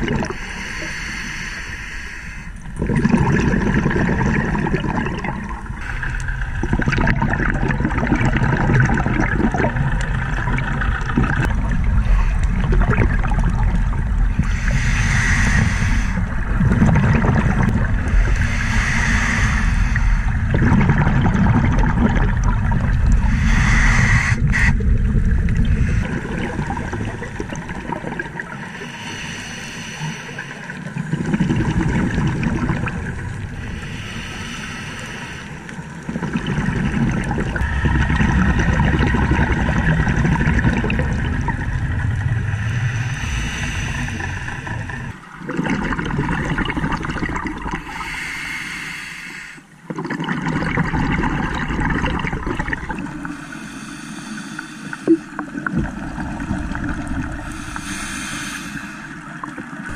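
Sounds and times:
bubbling exhalations: 0.0 - 0.4, 2.7 - 28.9, 30.7 - 35.1, 36.0 - 48.2, 49.9 - 53.4
scuba regulator breathing: 0.2 - 2.7, 5.7 - 6.4, 11.8 - 12.9, 14.4 - 16.6, 17.4 - 20.6, 23.1 - 25.0, 25.6 - 27.0, 28.5 - 31.0, 33.4 - 36.0, 42.4 - 45.2, 47.7 - 49.8, 53.2 - 55.6, 57.0 - 59.5.

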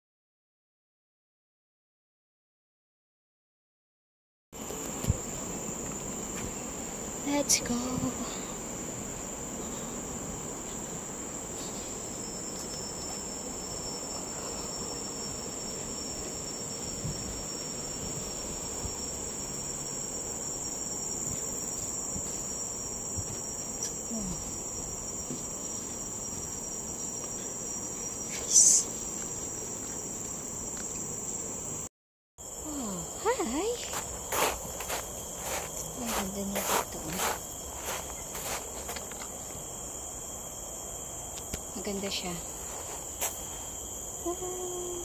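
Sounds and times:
forest insects droning: 4.6 - 45.0
loud insect burst: 33.1 - 44.3.

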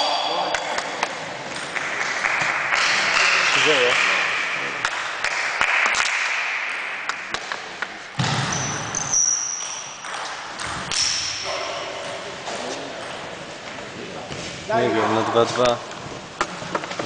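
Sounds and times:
shoes squeaking on floor: 8.5 - 10.2.

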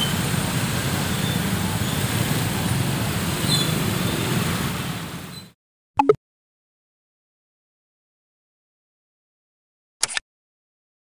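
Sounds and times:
slow city traffic rumble: 0.0 - 5.5.

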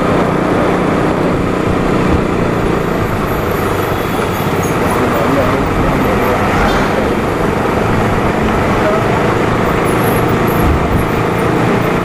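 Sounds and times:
wind noise on microphone: 0.0 - 5.0, 5.6 - 12.0
motorcycle engine running: 0.0 - 12.0.

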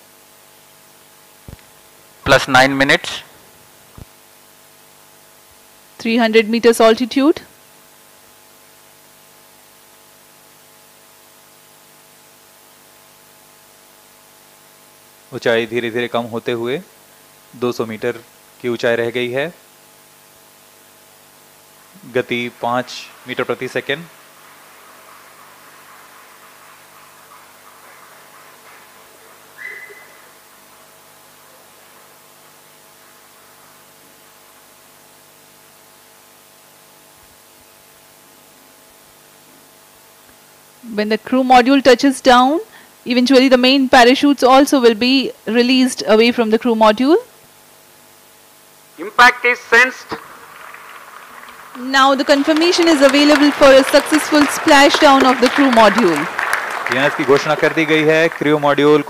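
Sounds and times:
electrical hum: 0.0 - 59.0
faint hiss: 48.9 - 59.0.

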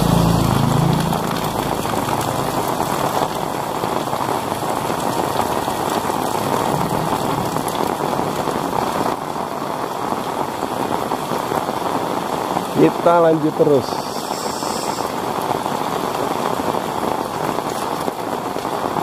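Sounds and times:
heavy rain on roofs and street: 0.0 - 19.0.

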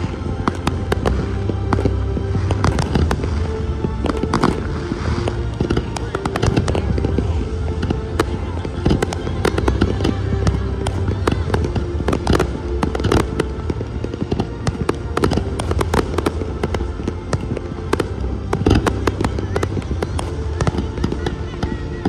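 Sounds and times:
firework bangs and cracks: 0.0 - 22.0
low rumble: 0.0 - 22.0.

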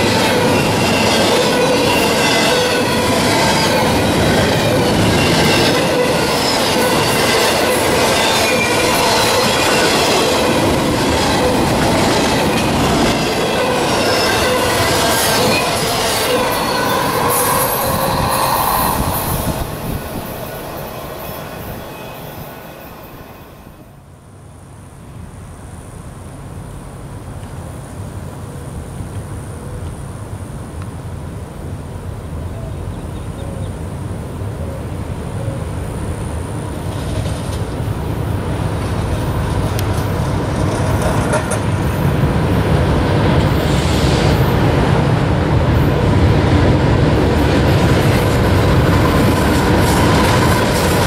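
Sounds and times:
steel wheels rumbling on rail: 0.0 - 24.2, 35.8 - 51.0
faint high squealing: 13.6 - 23.9.

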